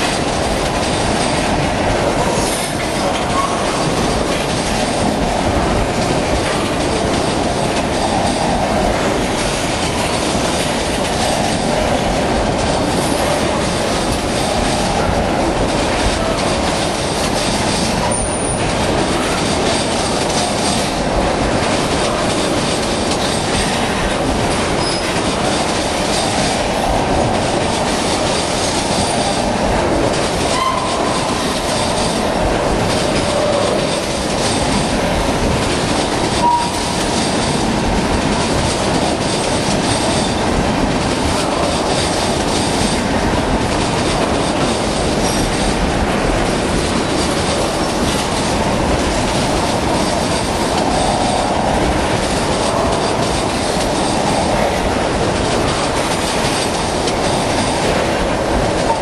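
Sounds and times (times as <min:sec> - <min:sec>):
freight train rumble: 0:00.0 - 0:59.0
wheels clacking over rail joints: 0:00.0 - 0:59.0
wheel squeals: 0:24.8 - 0:25.2, 0:36.4 - 0:36.9.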